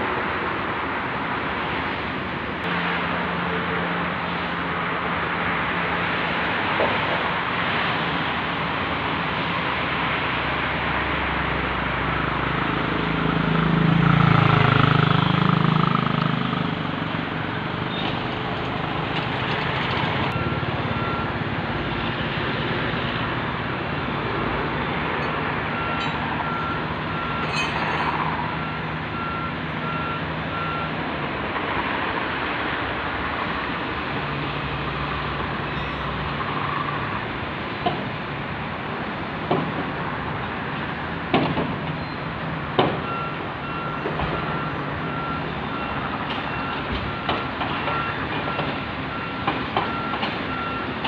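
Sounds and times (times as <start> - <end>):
steady outdoor noise: 0.0 - 51.0
motor vehicle passing: 12.5 - 17.5
reversing alarm beeping: 20.3 - 21.4, 25.2 - 31.0, 43.1 - 51.0.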